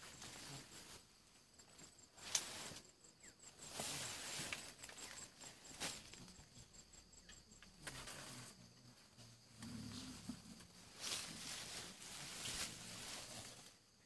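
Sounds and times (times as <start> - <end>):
rustling and crackling: 0.0 - 2.9, 3.5 - 14.0
faint high-pitched pulsing chirping: 0.0 - 14.0.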